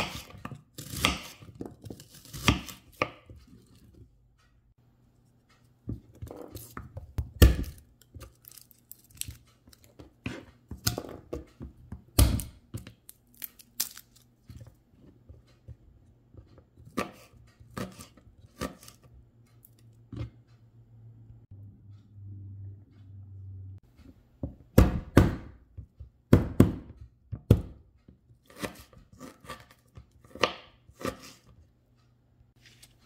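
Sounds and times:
garlic skins tearing and crackling: 0:07.7 - 0:09.9, 0:13.0 - 0:14.4.

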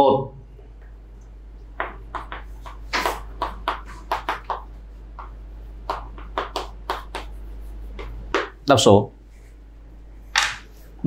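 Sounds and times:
chalk tapping and scraping on chalkboard: 0:01.8 - 0:08.6.

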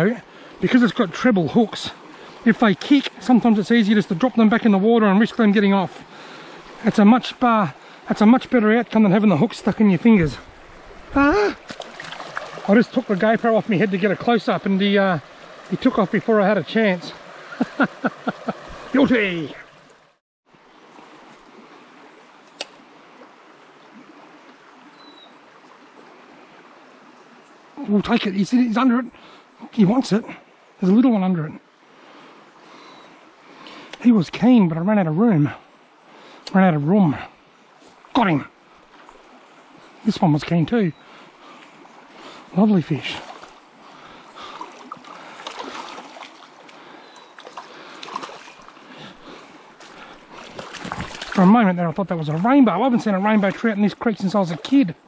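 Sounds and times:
creek flowing: 0:00.0 - 0:55.0
stream water running: 0:00.0 - 0:55.0
fish splashing at the surface: 0:11.4 - 0:12.7, 0:44.5 - 0:48.8, 0:49.8 - 0:51.4.

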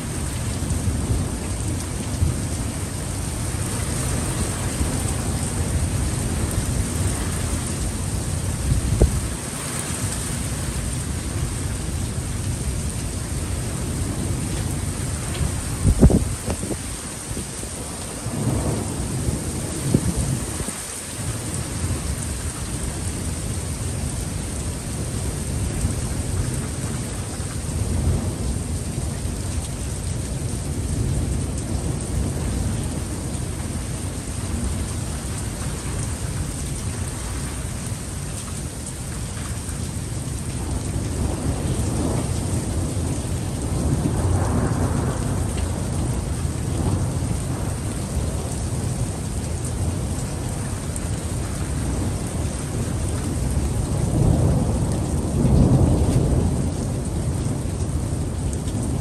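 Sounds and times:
thunder rumbling: 0:00.0 - 0:20.8, 0:39.8 - 0:59.0
heavy rain falling: 0:00.0 - 0:59.0.

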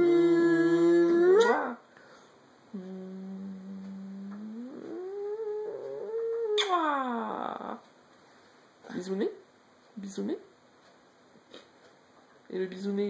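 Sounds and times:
person humming: 0:00.0 - 0:01.8, 0:02.7 - 0:07.9.

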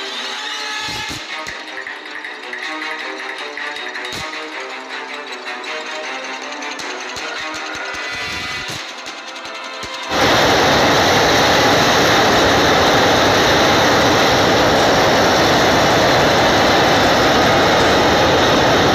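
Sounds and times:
flood torrent rushing: 0:10.1 - 0:18.9.

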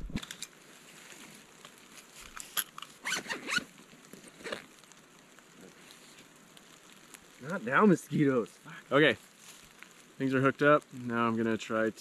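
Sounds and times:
backpack zipper rasping: 0:03.0 - 0:03.7.

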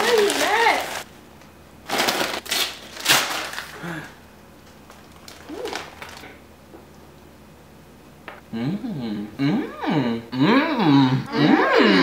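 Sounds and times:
plastic wrapper crinkling and tearing: 0:00.0 - 0:01.1, 0:01.8 - 0:06.4.

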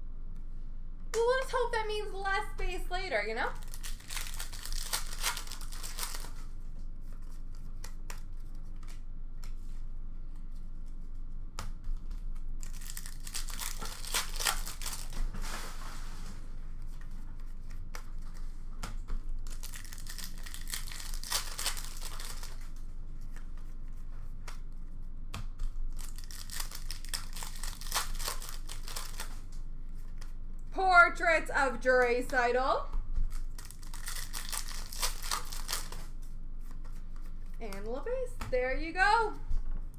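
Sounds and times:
wrappers tearing and crinkling: 0:03.6 - 0:06.6, 0:12.6 - 0:15.4, 0:19.3 - 0:22.8, 0:25.9 - 0:29.6, 0:33.3 - 0:36.2.

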